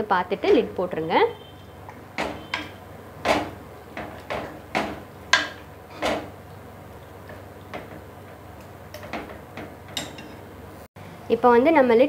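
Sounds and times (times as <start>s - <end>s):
ladle knocking against pot: 2.2s - 6.3s.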